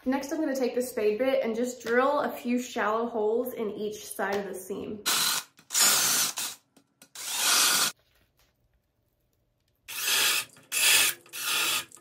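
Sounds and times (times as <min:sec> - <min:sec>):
cordless drill boring into foam: 0:05.1 - 0:08.0, 0:09.9 - 0:11.9.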